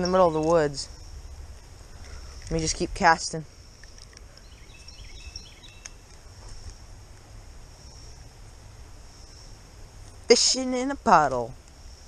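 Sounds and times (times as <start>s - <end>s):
crickets buzzing: 0.0s - 10.9s
sharp click: 5.6s - 6.2s.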